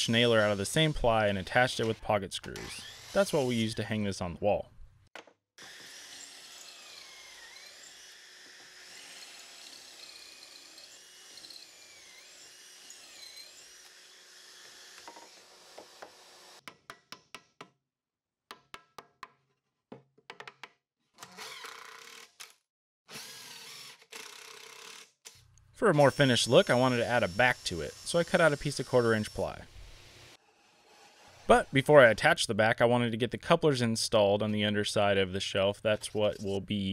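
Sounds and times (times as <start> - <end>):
screwdriver clicks and bursts: 23.5 - 25.6.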